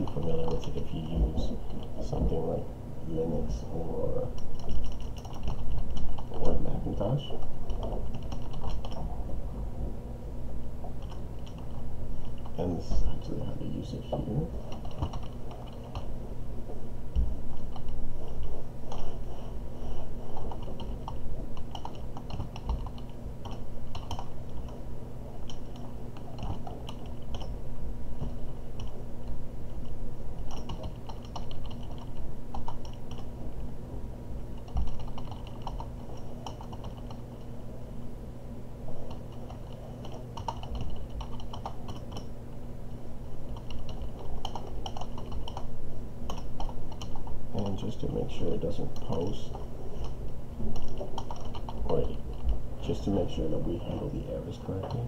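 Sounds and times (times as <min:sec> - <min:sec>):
low steady hum: 0:00.0 - 0:55.0
keyboard typing: 0:04.4 - 0:06.6, 0:07.6 - 0:09.0, 0:14.6 - 0:16.1, 0:20.3 - 0:24.8, 0:25.4 - 0:27.5, 0:30.4 - 0:33.3, 0:34.6 - 0:37.2, 0:39.1 - 0:42.3, 0:43.5 - 0:45.7, 0:46.3 - 0:48.0, 0:50.0 - 0:52.5.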